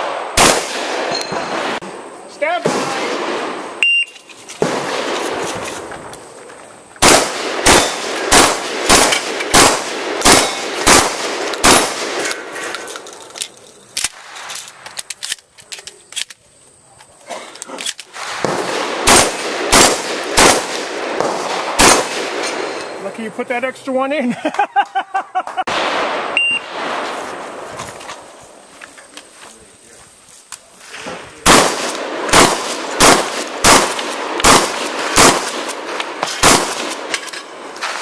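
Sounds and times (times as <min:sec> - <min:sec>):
shotgun shots: 0:00.0 - 0:01.8, 0:02.4 - 0:03.8, 0:04.6 - 0:05.9, 0:07.0 - 0:12.7, 0:18.1 - 0:23.0, 0:25.7 - 0:27.4, 0:31.4 - 0:37.2
shells clicking into gun: 0:12.2 - 0:16.4.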